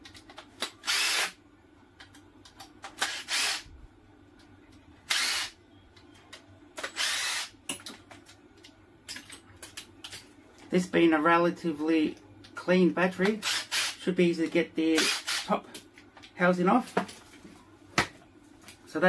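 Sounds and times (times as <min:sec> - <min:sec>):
cordless driver motor: 0:00.8 - 0:01.4, 0:03.0 - 0:03.6, 0:05.1 - 0:05.5, 0:06.9 - 0:07.5, 0:13.4 - 0:14.0, 0:15.0 - 0:15.5.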